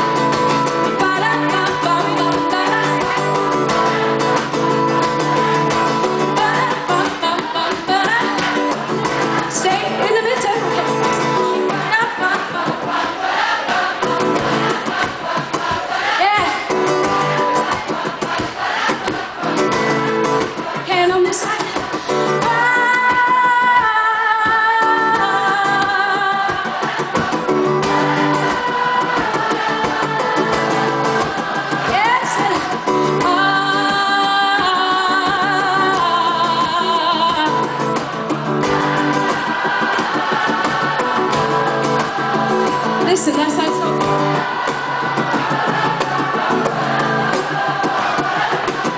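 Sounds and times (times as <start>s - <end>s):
acoustic guitar: 0.0s - 48.9s
woman singing: 0.8s - 4.2s, 5.0s - 13.1s, 15.6s - 16.8s, 20.5s - 41.0s, 42.4s - 44.5s.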